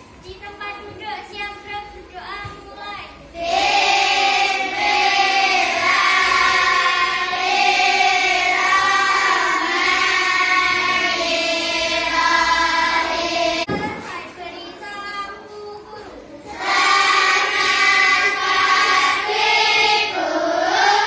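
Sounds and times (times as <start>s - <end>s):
children chanting in unison: 3.4s - 13.8s, 16.5s - 21.0s.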